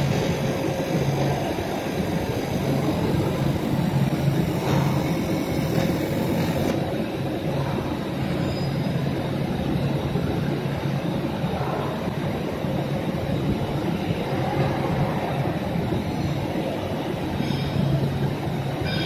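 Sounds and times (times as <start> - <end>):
laser engraving machine humming: 0.0 - 6.9.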